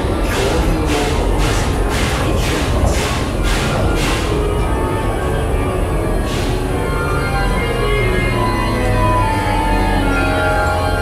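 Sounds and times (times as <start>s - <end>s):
ominous music: 0.0s - 11.0s.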